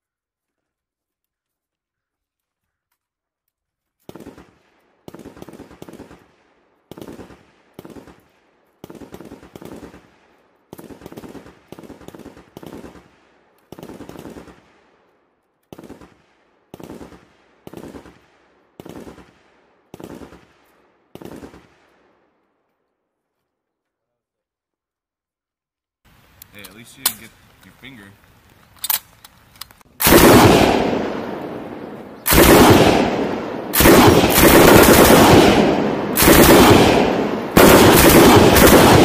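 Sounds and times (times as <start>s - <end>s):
machine gun bursts with echo: 8.8s - 10.1s, 10.7s - 14.7s, 15.7s - 18.2s, 18.8s - 21.8s, 30.0s - 39.0s.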